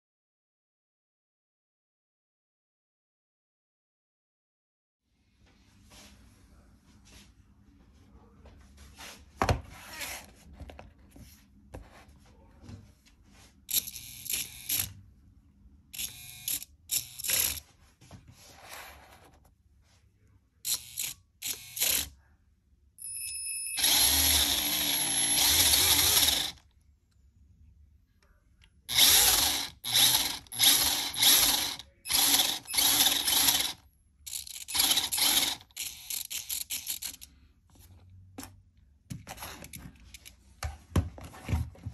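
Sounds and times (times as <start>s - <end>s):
small electric motor whirring: 13.7s - 14.9s, 16.0s - 17.6s, 20.7s - 22.1s, 23.8s - 26.6s, 28.9s - 37.2s.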